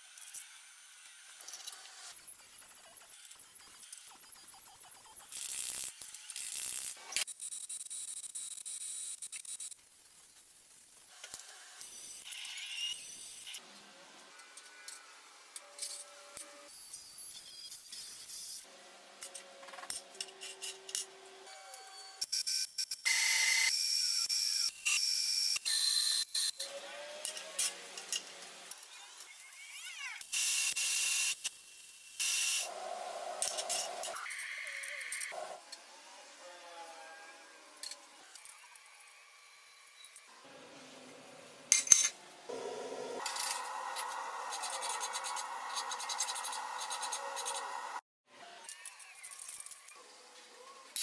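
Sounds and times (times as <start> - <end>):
welding hiss and crackle: 5.0 - 13.6, 43.2 - 48.0
rising whine: 42.5 - 48.0.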